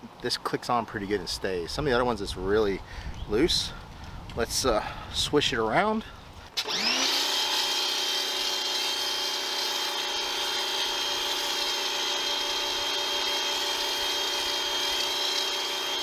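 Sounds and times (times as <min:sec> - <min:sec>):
pressure washer whining: 0:06.6 - 0:16.0.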